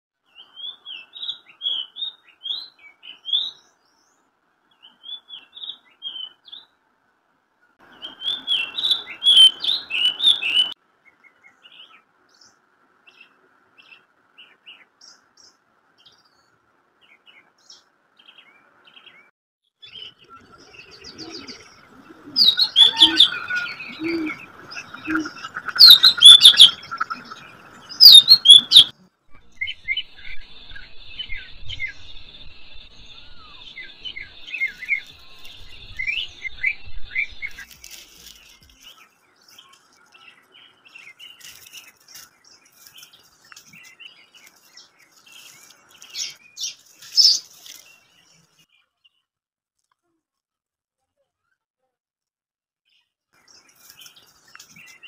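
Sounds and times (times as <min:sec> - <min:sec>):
small birds chirping: 0:07.8 - 0:49.3, 0:52.9 - 0:55.0.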